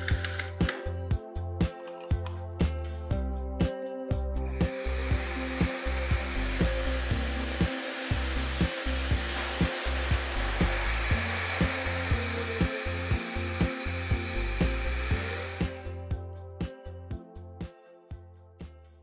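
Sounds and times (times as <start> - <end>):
background music with beat: 0.0 - 19.0
vacuum cleaner motor running: 4.5 - 16.1.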